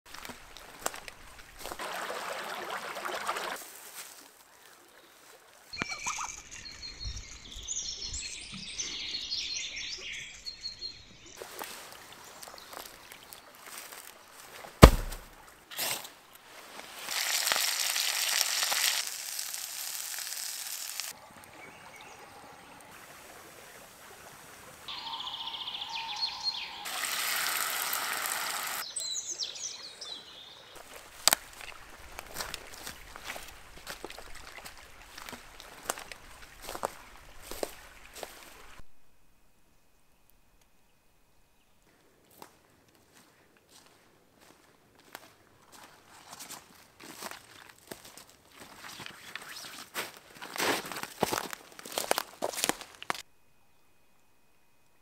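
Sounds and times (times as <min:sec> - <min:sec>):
forest stream rushing: 0:00.1 - 0:04.2, 0:16.5 - 0:38.8
songbirds chirping: 0:04.4 - 0:14.7, 0:24.9 - 0:26.9, 0:28.8 - 0:38.8
sharp crack: 0:14.8 - 0:15.4
meat sizzling in a frying pan: 0:17.0 - 0:21.1, 0:26.8 - 0:28.8.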